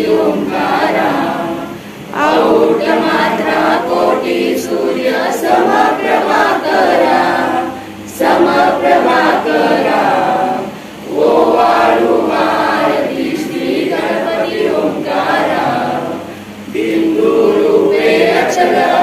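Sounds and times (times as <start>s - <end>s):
group of people singing together: 0.0s - 19.0s.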